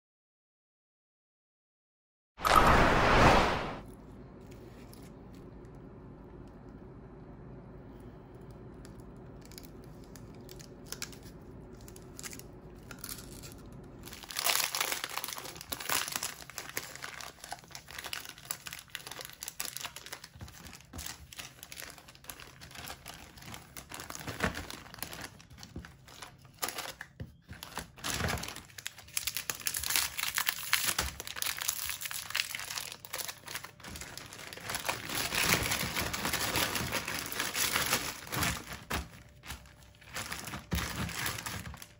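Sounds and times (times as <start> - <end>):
faint steady hum: 3.9 - 20.2
wrappers crinkling and tearing: 9.4 - 41.9.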